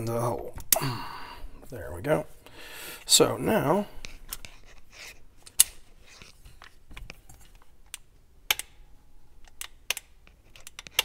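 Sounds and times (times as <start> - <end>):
sharp metallic clicks: 7.9 - 8.8.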